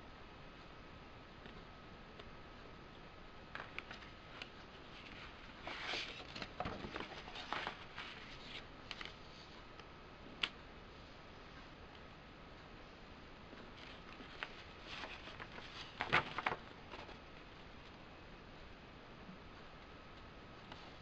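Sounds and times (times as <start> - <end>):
paper rustling and crinkling: 3.6 - 9.5, 13.8 - 17.3.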